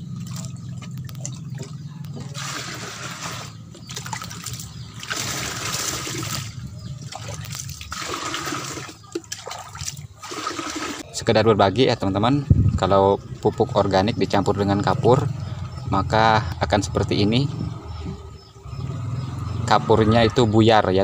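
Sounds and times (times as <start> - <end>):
water pouring into plastic tub: 2.4 - 11.0.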